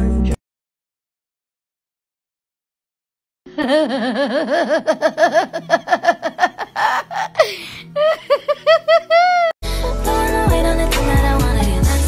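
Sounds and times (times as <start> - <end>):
woman laughing: 3.5 - 9.6
woman squealing: 3.6 - 9.6
breathy gasp: 7.3 - 8.0.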